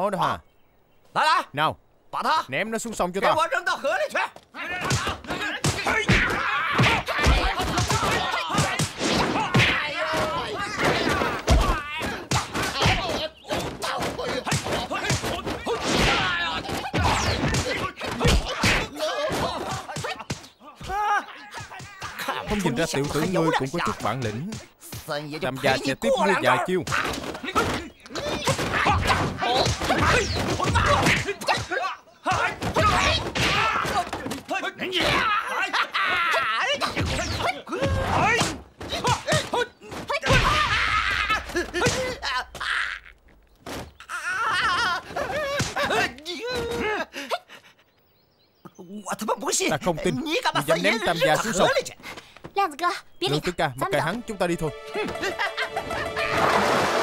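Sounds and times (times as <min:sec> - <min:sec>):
fighters grunting and shouting: 0:03.2 - 0:43.2, 0:44.0 - 0:47.6, 0:49.4 - 0:52.0
punches and body blows: 0:04.2 - 0:47.1
punch and kick impacts: 0:04.8 - 0:20.4.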